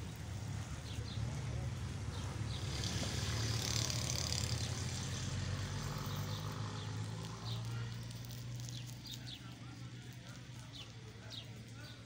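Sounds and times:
small birds chirping: 0:00.0 - 0:12.0
vehicle engine idling: 0:00.0 - 0:12.0.

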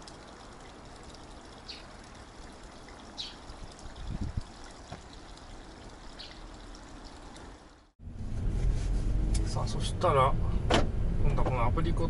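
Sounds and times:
water trickling into pond: 0:00.0 - 0:08.0.

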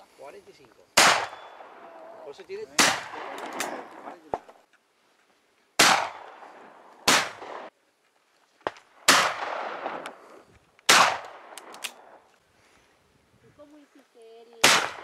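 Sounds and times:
shotgun shots: 0:01.0 - 0:01.8, 0:02.7 - 0:04.1, 0:05.8 - 0:07.7, 0:09.0 - 0:10.1, 0:10.9 - 0:11.9, 0:14.6 - 0:15.0.

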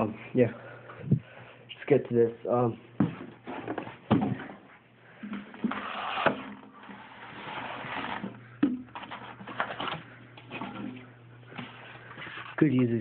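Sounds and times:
low steady hum: 0:00.0 - 0:13.0
cardboard and styrofoam rustling: 0:05.6 - 0:08.4.

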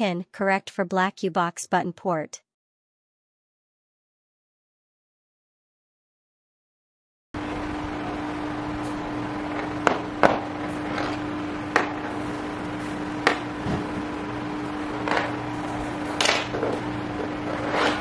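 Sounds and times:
steady low hum: 0:07.4 - 0:18.0.

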